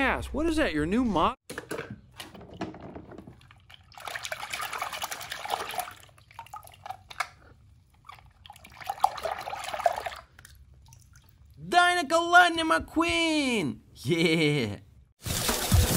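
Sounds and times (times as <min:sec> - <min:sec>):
water sloshing in plastic tub: 0:02.0 - 0:11.3.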